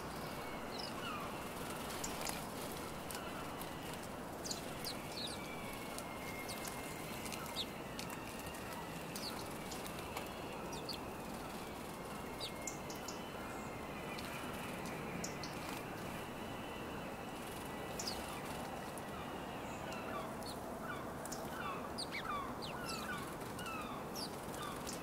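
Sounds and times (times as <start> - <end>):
sparrows chirping: 0.0 - 25.0
steady background noise: 0.0 - 25.0
wings fluttering: 0.9 - 12.7, 22.9 - 25.0.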